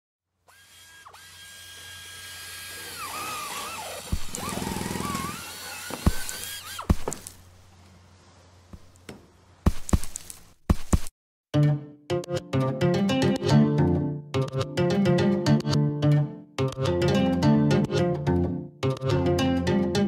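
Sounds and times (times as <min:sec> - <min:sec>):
warbling whirr: 0:02.7 - 0:06.9.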